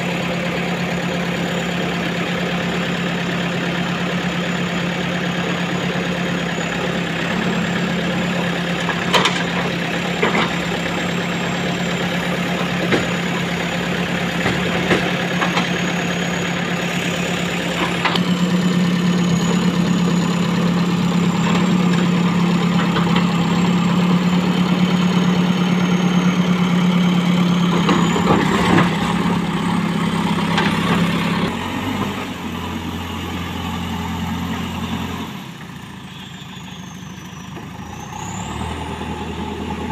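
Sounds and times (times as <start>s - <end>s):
diesel engine running: 0.0s - 39.9s
knocks and clanks: 12.6s - 13.4s, 14.4s - 15.8s.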